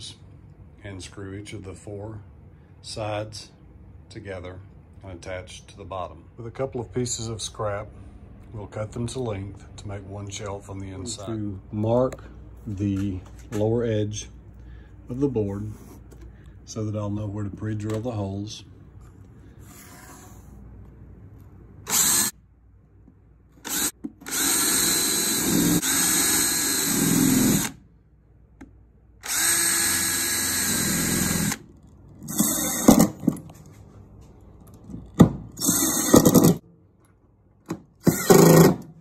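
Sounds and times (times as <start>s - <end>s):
cordless drill driving screws: 21.9s - 22.3s, 23.6s - 27.8s, 29.2s - 31.6s, 32.3s - 33.2s, 35.6s - 36.6s, 38.0s - 38.8s
power drill boring into wood: 21.9s - 22.3s, 23.6s - 27.8s, 29.2s - 31.6s, 32.3s - 33.1s, 35.6s - 36.6s, 38.1s - 38.8s.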